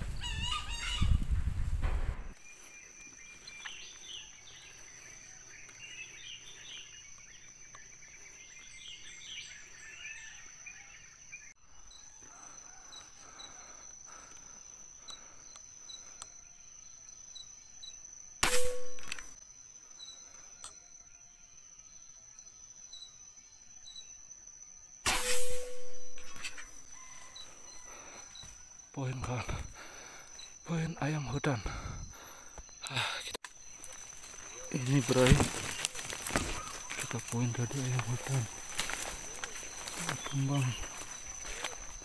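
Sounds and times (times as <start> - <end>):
bird chirps: 2.4 - 12.0
high-pitched insect drone: 11.8 - 42.0
rifle shot: 18.4 - 19.2, 25.1 - 26.0.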